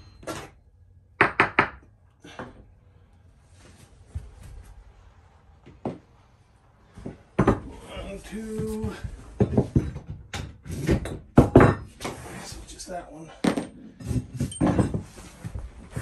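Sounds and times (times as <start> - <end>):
knocks and thumps on wooden floor: 7.0 - 7.8, 8.6 - 11.9.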